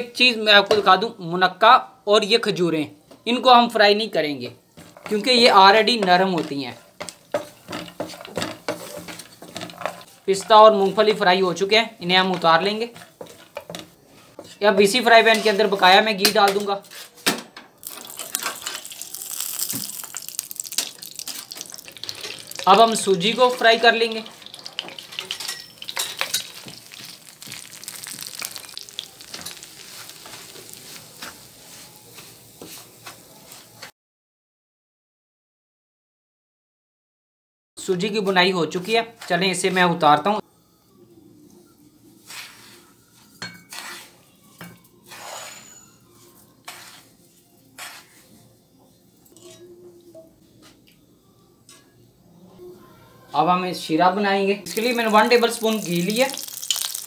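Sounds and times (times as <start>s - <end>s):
semolina sizzling in ghee: 3.4s - 17.0s, 17.8s - 33.9s, 38.2s - 50.5s, 54.4s - 57.0s
wooden spatula scraping a pan: 4.7s - 17.2s, 20.1s - 33.9s, 42.2s - 48.5s.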